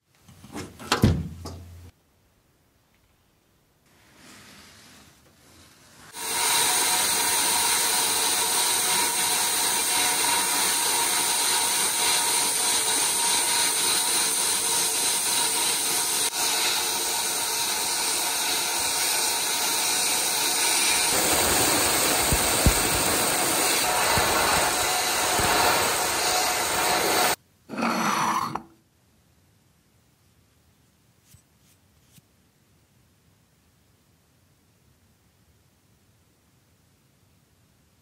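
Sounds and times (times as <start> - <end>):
sandblaster hissing: 6.1 - 27.4.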